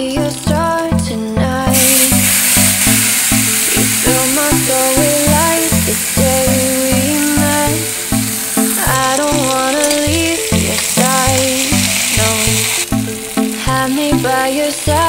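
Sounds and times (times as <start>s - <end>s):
background music with bass line: 0.0s - 15.0s
okra sizzling in oil: 1.7s - 13.8s.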